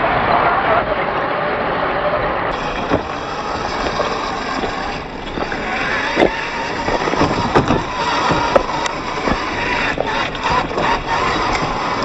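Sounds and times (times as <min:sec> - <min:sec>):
electric motor and gear whine: 0:02.5 - 0:12.0
tyres crunching on gravel: 0:02.5 - 0:12.0
sharp clicks on rocks: 0:02.6 - 0:12.0.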